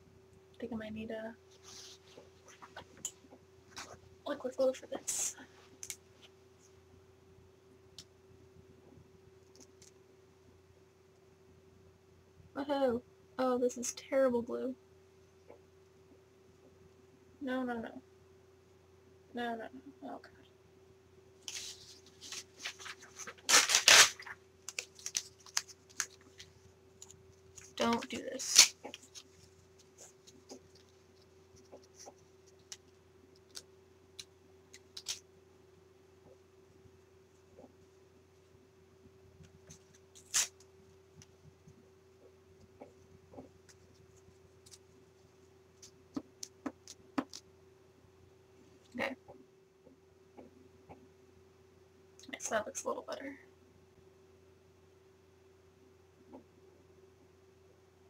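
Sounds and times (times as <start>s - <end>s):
faint rustles: 1.4s - 3.0s
paper crumpling and crackling: 21.4s - 35.2s
paper tearing: 21.5s - 26.2s, 27.6s - 29.3s, 40.2s - 40.6s.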